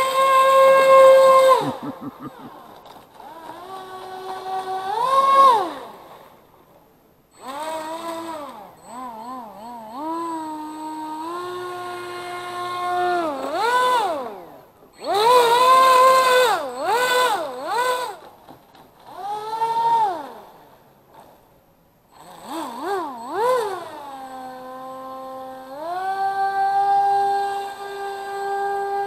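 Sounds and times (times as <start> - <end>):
electric motor and propeller whining: 0.0 - 6.4, 7.3 - 18.4, 19.0 - 21.4, 22.1 - 29.0.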